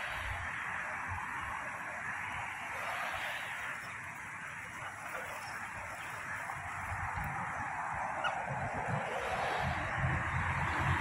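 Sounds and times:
rushing outdoor background noise: 0.0 - 11.0
wind buffeting microphone: 2.4 - 11.0.

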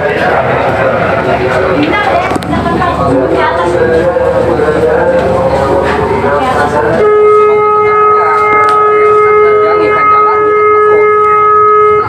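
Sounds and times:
ship's horn blast: 2.9 - 12.0.

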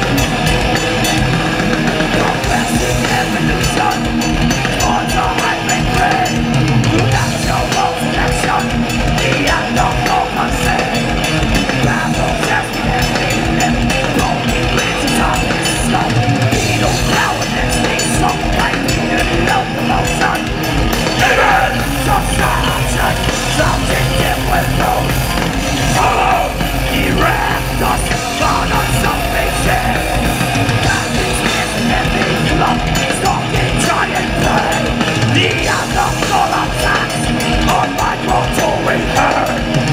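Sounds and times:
bass guitar: 0.0 - 39.9
distorted electric guitars: 0.0 - 39.9
drum kit: 0.0 - 39.9
shouted vocals: 21.1 - 39.9.

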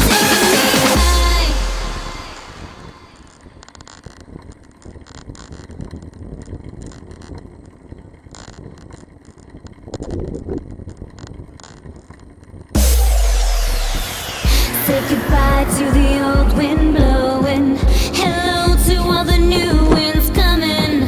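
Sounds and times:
bike clicks and rattles: 3.2 - 12.8, 19.0 - 21.0
wind on microphone: 4.2 - 12.0, 14.1 - 21.0.

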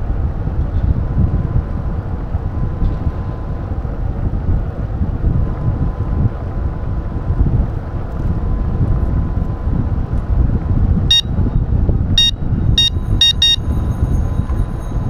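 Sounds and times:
wind rumble on microphone: 0.0 - 15.0
short high-pitched beeps: 11.1 - 11.3, 12.2 - 13.8.

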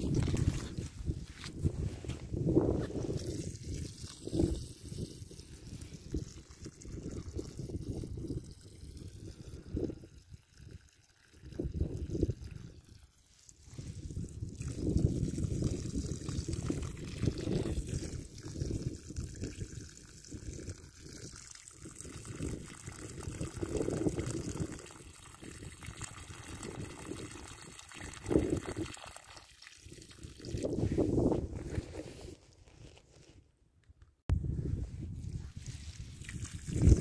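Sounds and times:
water splashing from hose: 3.0 - 9.2, 10.1 - 30.8, 35.6 - 37.0.

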